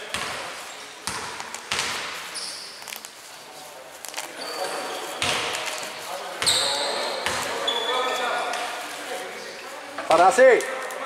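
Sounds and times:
basketball bouncing on wooden court: 0.0s - 2.2s, 5.2s - 5.6s, 6.4s - 7.6s
sneakers squeaking: 0.0s - 3.2s, 4.1s - 8.8s.

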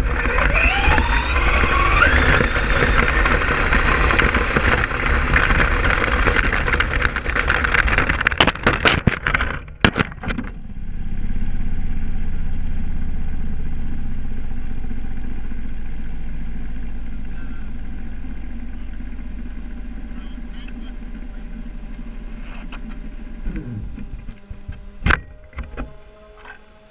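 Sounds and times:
rc truck driving over gravel: 0.0s - 26.9s
steady low hum: 0.0s - 26.9s
rc truck crashing and tumbling: 0.2s - 10.6s.

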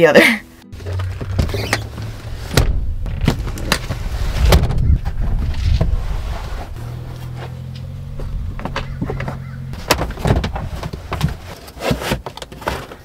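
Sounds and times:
low rumble: 0.6s - 9.8s
car seats clunking: 0.8s - 13.0s.

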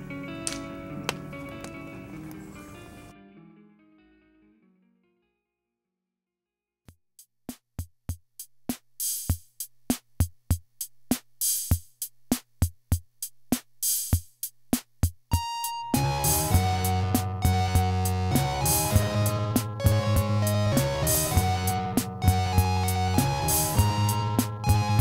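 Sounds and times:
electronic drum beat: 7.4s - 25.0s
electronic track with chords: 15.3s - 25.0s
high synth note: 16.0s - 25.0s.

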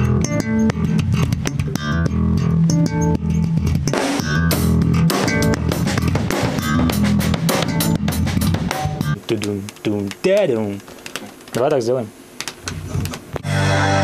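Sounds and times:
electric bass guitar low notes: 0.0s - 9.3s, 13.4s - 14.0s
drum kit steady beat: 0.0s - 11.4s.

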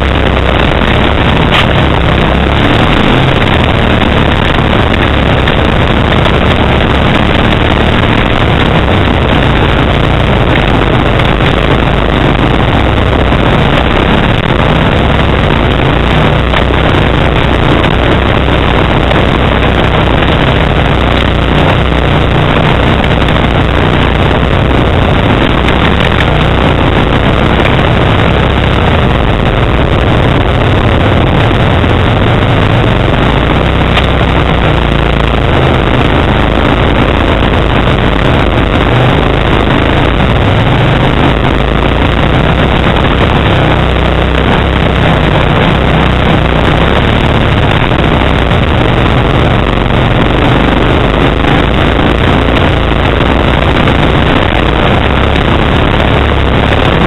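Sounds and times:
atv engine running: 0.0s - 57.0s.

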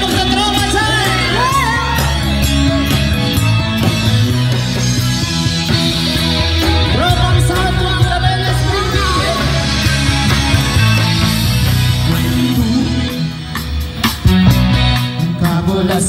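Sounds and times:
live band music over pa: 0.0s - 16.0s
person singing: 11.9s - 13.6s, 15.0s - 16.0s.

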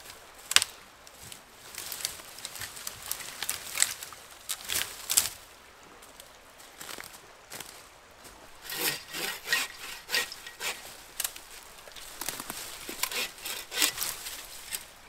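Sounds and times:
bow saw cutting wood: 8.6s - 11.3s, 12.5s - 14.9s.

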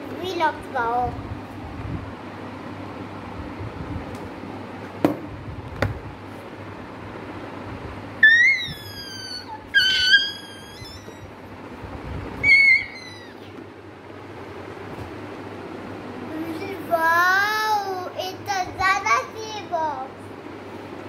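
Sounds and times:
boy squealing: 8.2s - 11.4s, 12.4s - 13.6s.

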